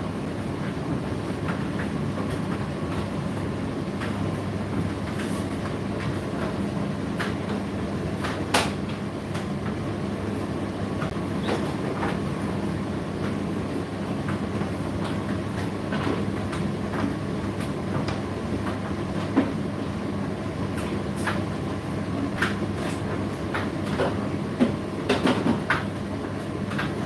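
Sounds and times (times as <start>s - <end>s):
tumble dryer humming: 0.0s - 27.0s
knocks from dryer drum: 23.5s - 25.9s.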